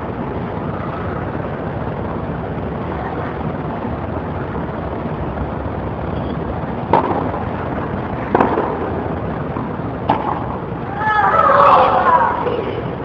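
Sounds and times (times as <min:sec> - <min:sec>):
steady rushing noise: 0:00.0 - 0:13.0
tennis ball struck by racket: 0:06.8 - 0:07.4, 0:08.3 - 0:09.0, 0:10.0 - 0:10.6.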